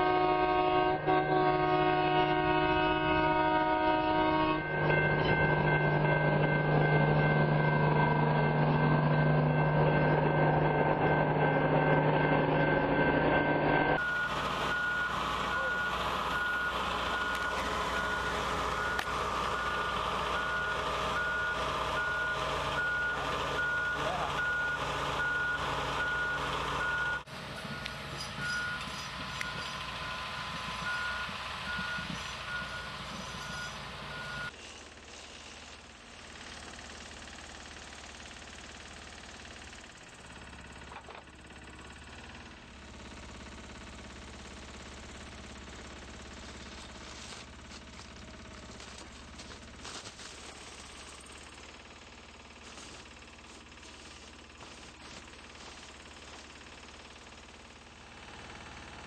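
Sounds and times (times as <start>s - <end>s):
freight train rolling past: 0.0s - 34.5s
heavy machine engine: 0.0s - 59.0s
reversing alarm beeping: 1.1s - 34.6s.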